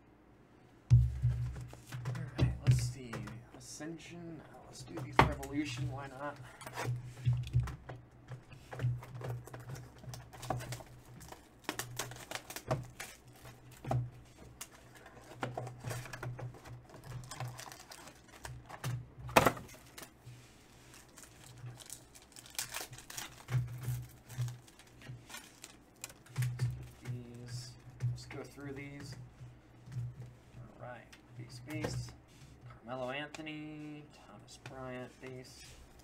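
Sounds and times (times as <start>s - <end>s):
foil card packs crinkling: 8.8s - 29.1s.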